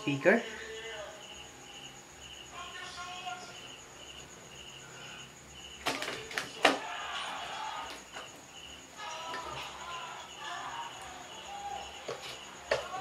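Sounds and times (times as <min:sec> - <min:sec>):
cricket chirping: 0:00.0 - 0:13.0
faint voices: 0:04.8 - 0:13.0.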